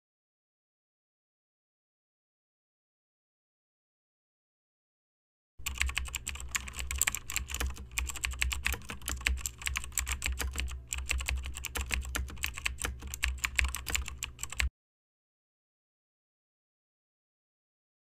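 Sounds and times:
keyboard typing: 0:05.6 - 0:14.7.

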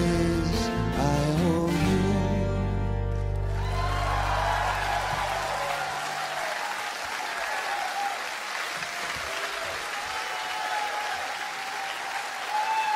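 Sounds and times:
audience applauding and cheering: 0:03.1 - 0:12.9.

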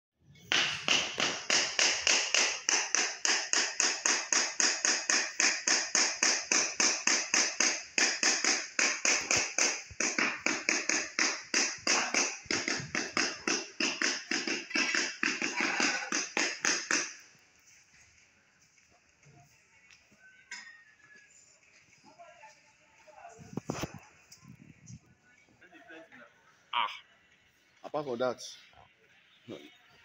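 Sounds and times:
tool tapping on ceramic tiles: 0:00.5 - 0:17.2.

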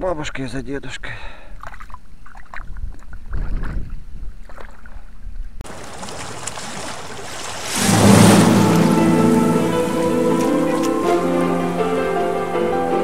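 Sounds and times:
water sloshing and splashing: 0:01.6 - 0:12.1.

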